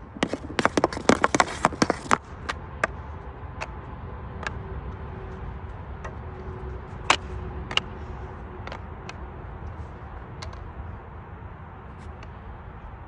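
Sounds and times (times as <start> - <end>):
puck tapping on hockey stick: 0.2 - 3.0, 7.0 - 7.9.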